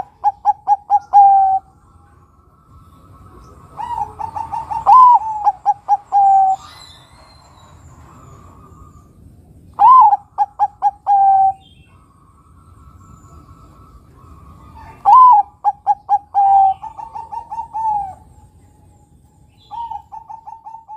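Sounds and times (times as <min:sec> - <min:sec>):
dove cooing: 0:00.0 - 0:01.7, 0:02.8 - 0:06.7, 0:09.8 - 0:11.9, 0:13.2 - 0:18.6, 0:19.5 - 0:20.9.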